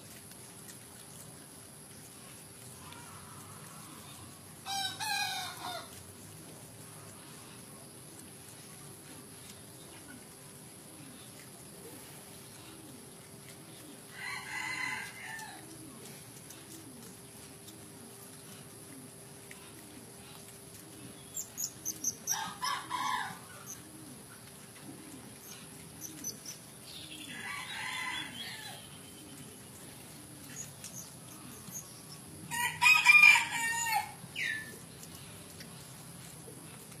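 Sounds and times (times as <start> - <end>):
chickens calling: 2.8 - 6.0, 11.0 - 37.0
rooster crow: 4.6 - 5.9, 14.1 - 15.6, 22.3 - 23.5, 27.2 - 28.9, 32.5 - 34.7
small birds chirping: 19.5 - 32.5.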